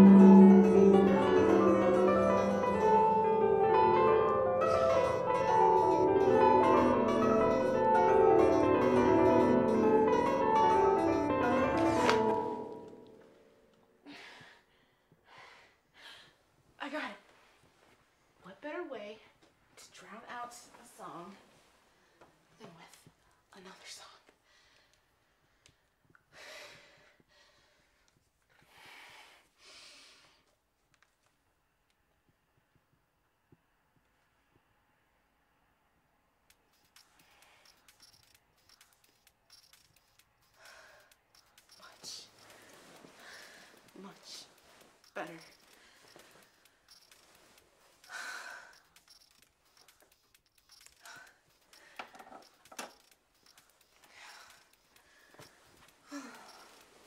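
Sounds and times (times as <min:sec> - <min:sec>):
woman breathing heavily: 0:14.0 - 0:16.6, 0:24.4 - 0:30.5, 0:37.0 - 0:57.0
breathy sighing: 0:41.8 - 0:44.7, 0:47.9 - 0:49.3, 0:54.0 - 0:57.0
bedding rustling: 0:41.8 - 0:50.1, 0:50.9 - 0:57.0.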